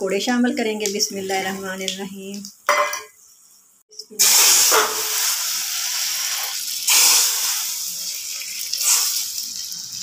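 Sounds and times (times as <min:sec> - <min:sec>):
hot oil sizzling: 0:04.1 - 0:10.0.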